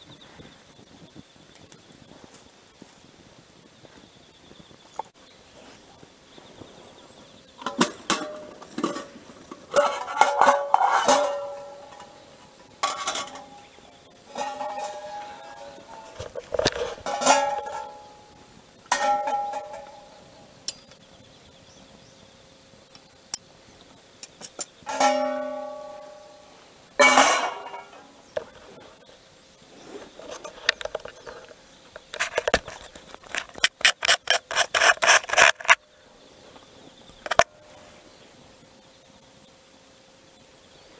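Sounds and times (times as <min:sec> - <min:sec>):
metal lid and pan clanking: 0:07.6 - 0:18.2, 0:18.9 - 0:20.8, 0:24.9 - 0:28.6.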